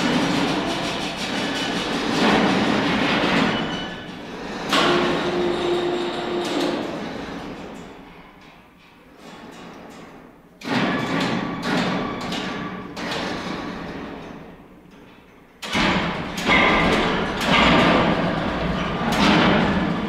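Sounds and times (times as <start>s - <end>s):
heavy metal knocks and clanks: 0.0s - 20.0s.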